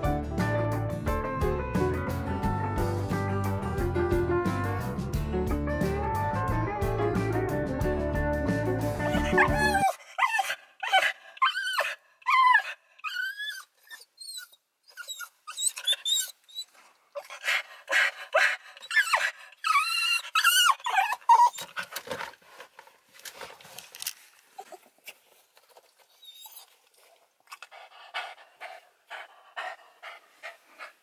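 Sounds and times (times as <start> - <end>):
dog whining and yelping: 9.1 - 22.2, 26.1 - 26.8, 27.5 - 31.0.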